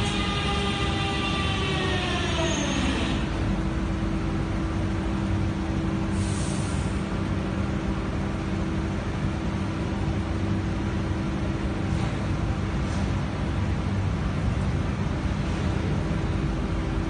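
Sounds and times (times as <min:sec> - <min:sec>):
train motor whine: 0:00.0 - 0:03.7
brief hiss: 0:06.1 - 0:07.0.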